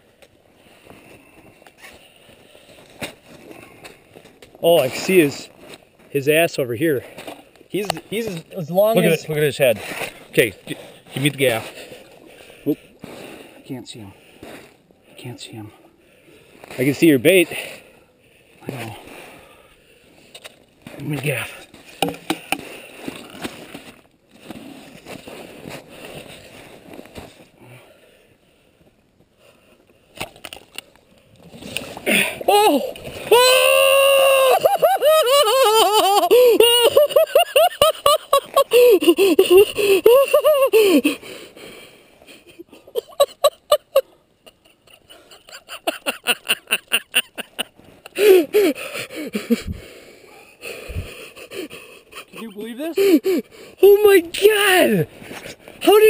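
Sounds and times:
sharp knocks: 0:22.0 - 0:22.6
man breathing hard: 0:38.7 - 0:42.5, 0:48.1 - 0:53.8.

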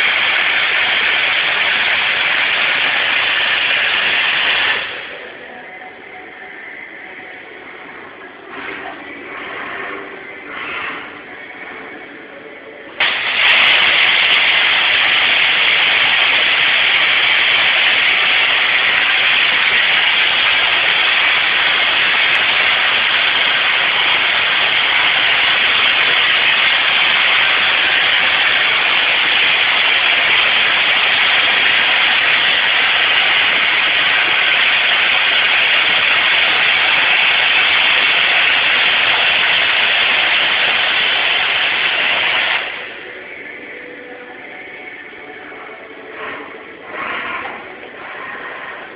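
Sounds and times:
welding arc hissing: 0:00.0 - 0:05.4, 0:13.0 - 0:43.8.

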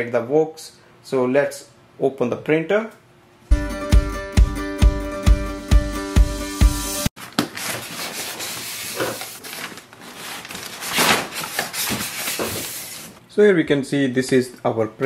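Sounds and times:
rustling: 0:07.2 - 0:13.2
styrofoam scraping on cardboard: 0:07.6 - 0:13.2.

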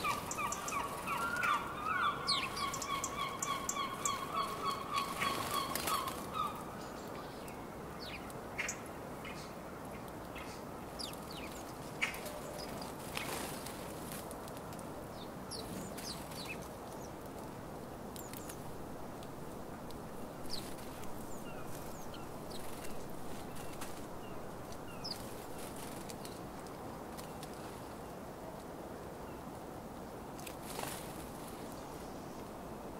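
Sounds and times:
sparrows chirping: 0:00.0 - 0:09.5, 0:15.1 - 0:17.1.

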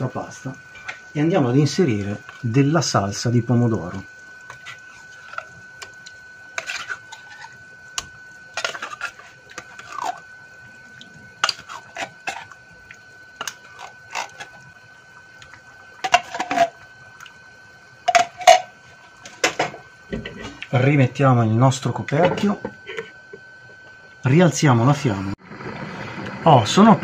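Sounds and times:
utensil scraping pan: 0:04.5 - 0:10.2, 0:11.4 - 0:12.6, 0:13.4 - 0:14.6.

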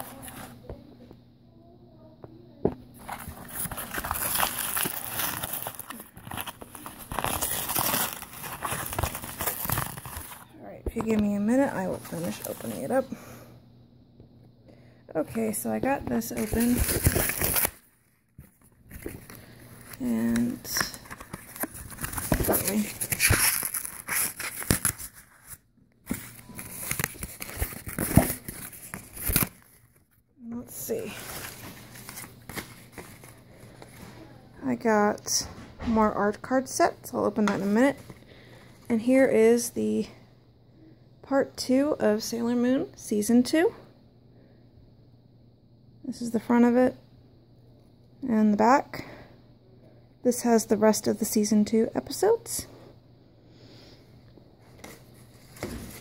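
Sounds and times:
paper rustling and crinkling: 0:03.0 - 0:10.5, 0:16.1 - 0:30.2, 0:30.8 - 0:34.3, 0:54.6 - 0:56.0.

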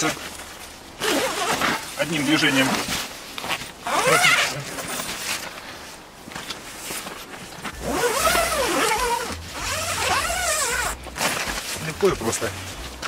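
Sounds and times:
tent zipper running: 0:00.0 - 0:06.0, 0:06.6 - 0:12.9
fabric rustling: 0:00.0 - 0:13.0.

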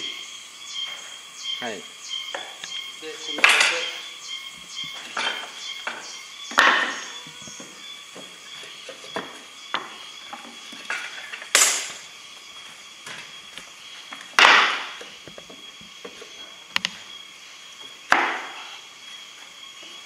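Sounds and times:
wooden boards knocking on frame: 0:04.8 - 0:08.3, 0:09.1 - 0:11.1, 0:14.4 - 0:15.6, 0:18.1 - 0:18.6.

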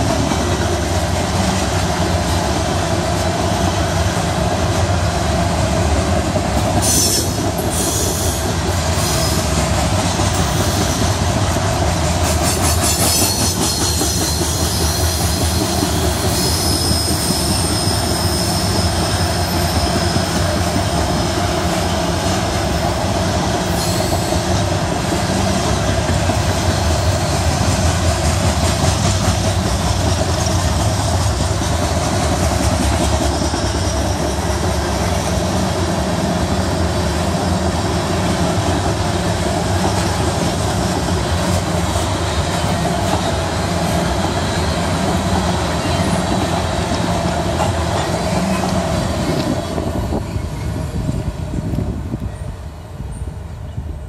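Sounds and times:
freight train wheels rumbling: 0:00.0 - 0:54.0
wheel squeal: 0:12.6 - 0:21.4, 0:48.2 - 0:51.0.

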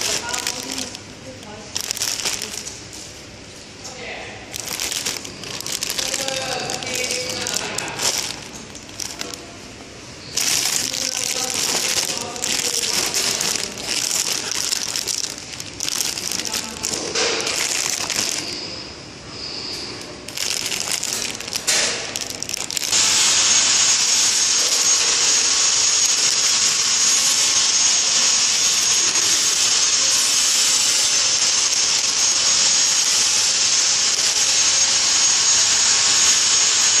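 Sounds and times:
plastic bags crinkling: 0:00.0 - 0:03.0, 0:04.5 - 0:09.6, 0:10.2 - 0:18.8, 0:19.8 - 0:23.0
loud steady hiss: 0:00.0 - 0:37.0
faint high whine: 0:05.1 - 0:20.3.

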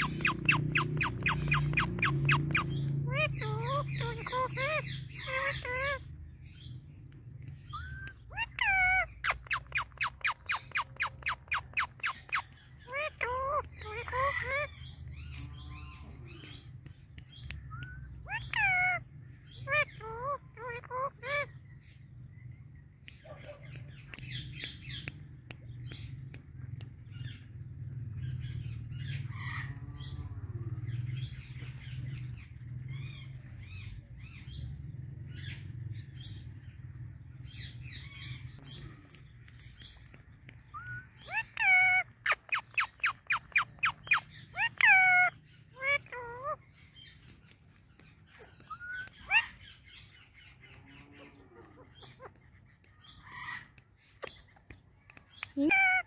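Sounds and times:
parrot calling: 0:00.0 - 0:06.8, 0:07.6 - 0:16.6, 0:17.8 - 0:21.7, 0:37.6 - 0:47.5, 0:48.2 - 0:54.5, 0:55.4 - 0:56.0
high chirping: 0:00.0 - 0:56.0.

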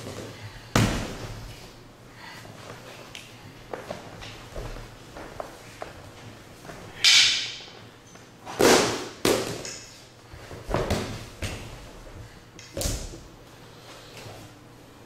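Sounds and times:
bodies thudding on gym mats: 0:00.0 - 0:01.6, 0:10.5 - 0:12.0.

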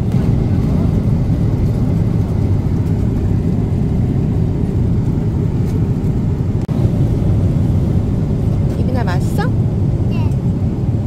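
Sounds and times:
airliner cabin engine rumble: 0:00.0 - 0:11.0.

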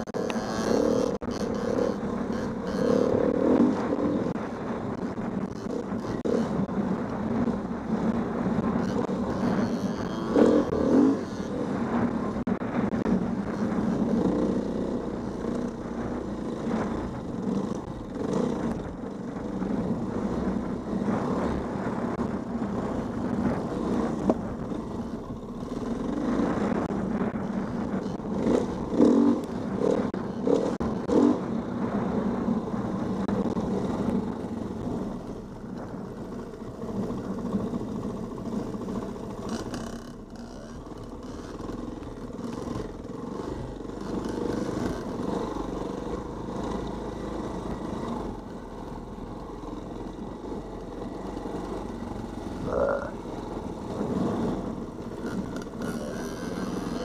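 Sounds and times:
dirt bike engine revving: 0:00.0 - 0:04.4, 0:08.7 - 0:19.0, 0:19.8 - 0:32.2, 0:50.4 - 0:57.0.

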